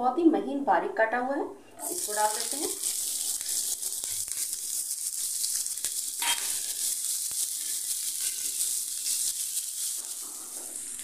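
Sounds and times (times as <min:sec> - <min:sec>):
onions sizzling in hot oil: 0:01.8 - 0:11.0
spatula scraping pan: 0:06.2 - 0:06.9.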